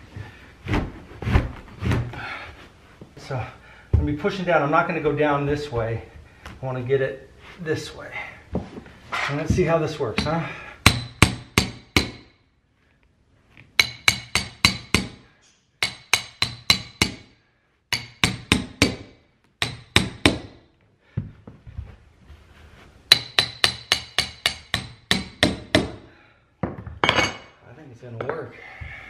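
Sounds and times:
hammer striking metal tool: 10.2 - 12.4, 13.8 - 15.2, 15.8 - 17.3, 17.9 - 20.5, 23.1 - 25.9.

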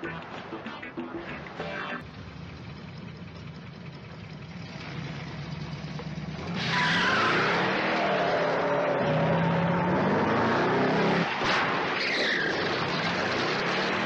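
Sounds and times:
car engine idling and revving: 2.0 - 14.0
tyres screeching: 6.4 - 10.4.

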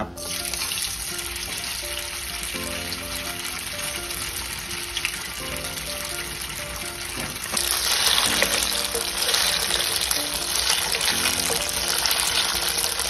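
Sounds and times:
background music: 0.0 - 13.0
tofu sizzling in oil: 6.4 - 13.0.

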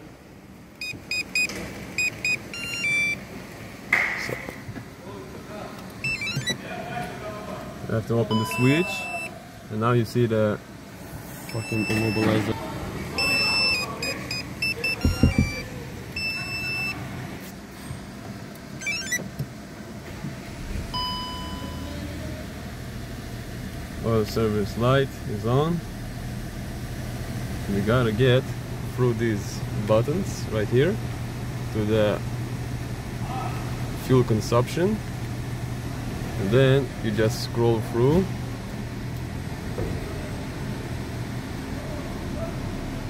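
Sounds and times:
car engine humming: 0.0 - 43.0
dashboard chimes: 0.8 - 3.2, 6.0 - 6.6, 8.3 - 9.3, 11.5 - 12.4, 13.1 - 17.0
short electronic beeps: 0.8 - 3.2, 6.0 - 6.6, 8.3 - 9.3, 11.5 - 12.4, 13.2 - 17.0, 18.8 - 19.2
longer warning chime: 6.0 - 6.6, 8.3 - 9.3, 11.5 - 12.4.

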